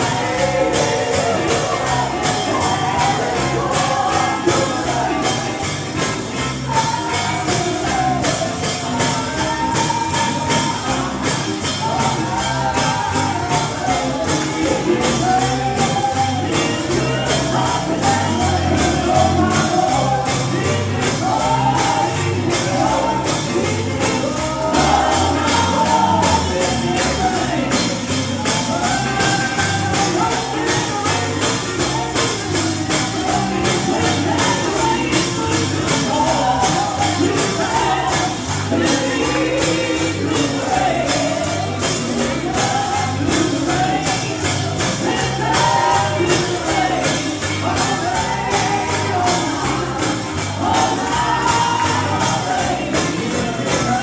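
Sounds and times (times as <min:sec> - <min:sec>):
band with pulsing bass line: 0:00.0 - 0:54.0
tambourine shaken on a beat: 0:00.0 - 0:54.0
voices singing gospel: 0:00.0 - 0:54.0.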